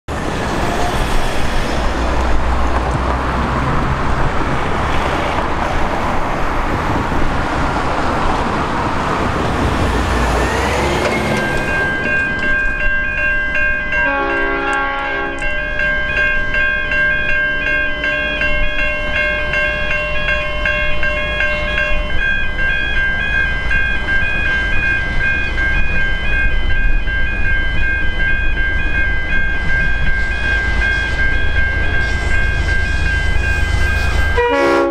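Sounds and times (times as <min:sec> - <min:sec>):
traffic rumble: 0:00.1 - 0:13.0
wind noise: 0:00.1 - 0:13.6
level crossing warning bell: 0:10.0 - 0:34.9.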